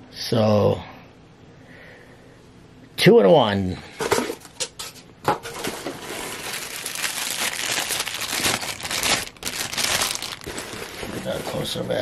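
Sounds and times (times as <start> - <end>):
plastic bag crinkling: 5.6 - 11.8.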